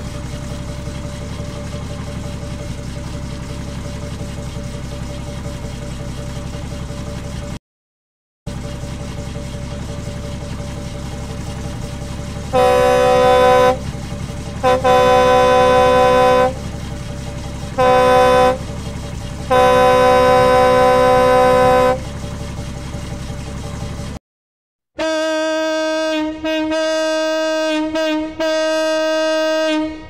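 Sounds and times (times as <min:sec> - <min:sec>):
diesel engine idling: 0:00.0 - 0:07.6, 0:08.5 - 0:24.2
truck air horn blasts: 0:12.5 - 0:13.9, 0:14.6 - 0:16.7, 0:17.8 - 0:18.7, 0:19.5 - 0:22.1, 0:25.0 - 0:30.0.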